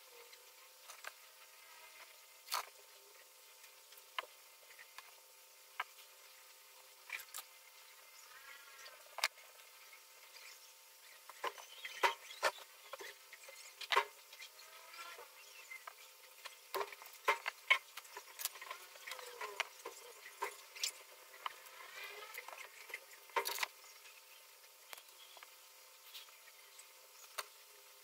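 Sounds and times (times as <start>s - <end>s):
faint high squeaky chirps: 9.8s - 16.7s, 18.1s - 27.4s.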